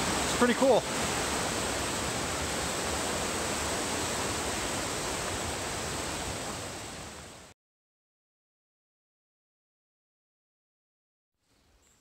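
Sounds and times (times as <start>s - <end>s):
water rushing over rocks: 0.0s - 7.5s.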